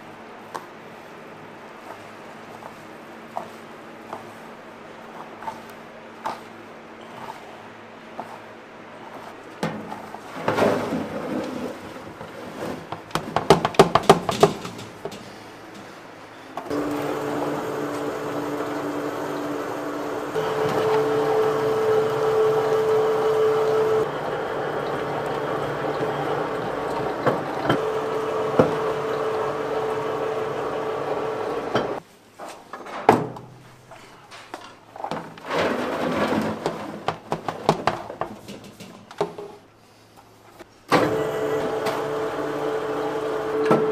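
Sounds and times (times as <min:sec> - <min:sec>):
food processor humming: 0:16.7 - 0:32.0, 0:41.0 - 0:43.9.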